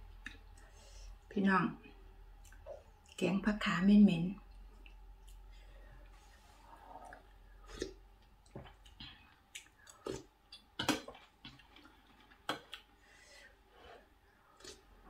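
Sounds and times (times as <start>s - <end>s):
soft chewing: 0.0s - 3.2s, 4.4s - 13.0s.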